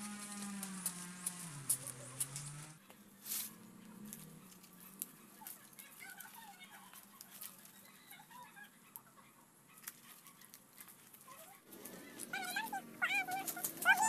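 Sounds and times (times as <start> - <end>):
palm leaves rustling: 0.0 - 7.9, 9.8 - 14.0
dog whining: 12.0 - 14.0.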